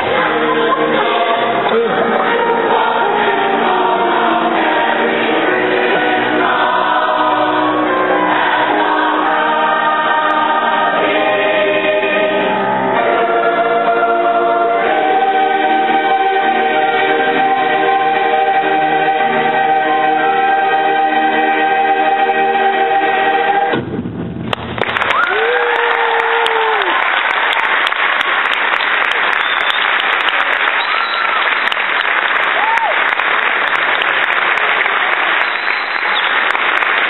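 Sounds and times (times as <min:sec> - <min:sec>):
choir singing in parts: 0:00.0 - 0:23.8.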